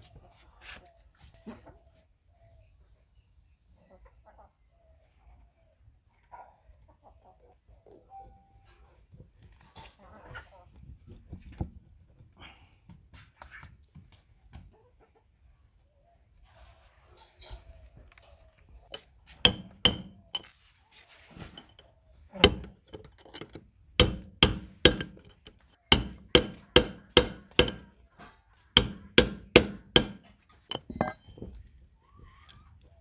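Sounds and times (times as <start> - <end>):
hammer striking steel punch: 19.5 - 20.5, 22.4 - 27.9, 28.8 - 31.3.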